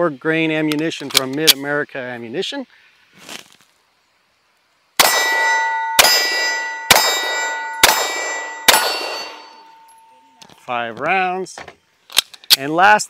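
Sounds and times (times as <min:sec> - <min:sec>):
pistol shots: 0:05.0 - 0:09.8
metallic ringing: 0:05.0 - 0:10.5.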